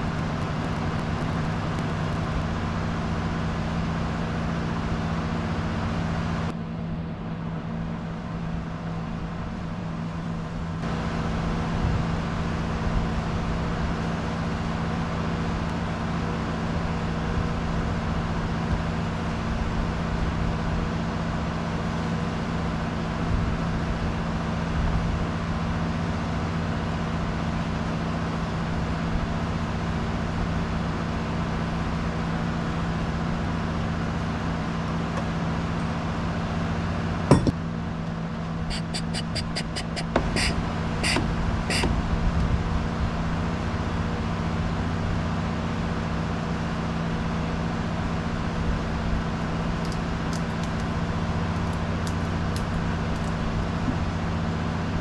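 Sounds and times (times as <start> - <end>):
low engine drone: 0.0 - 55.0
sharp knock: 37.3 - 37.6.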